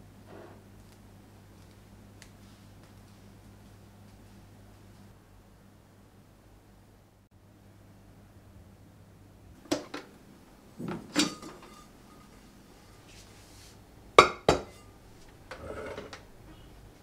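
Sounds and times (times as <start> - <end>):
metal pot and dishes clinking: 10.8 - 12.5, 14.2 - 14.9.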